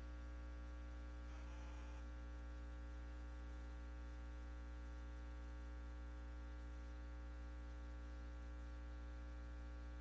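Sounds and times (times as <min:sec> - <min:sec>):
faint electrical hum: 0:00.0 - 0:10.0.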